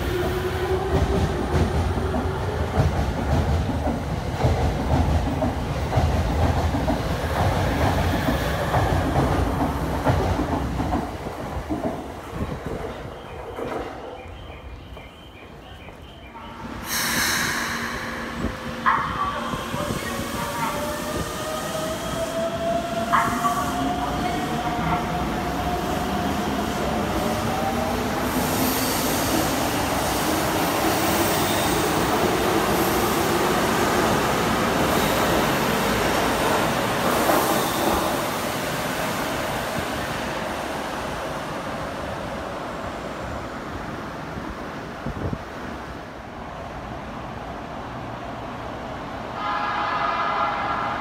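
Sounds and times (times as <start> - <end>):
train wheels rumbling on rail: 0.0 - 51.0.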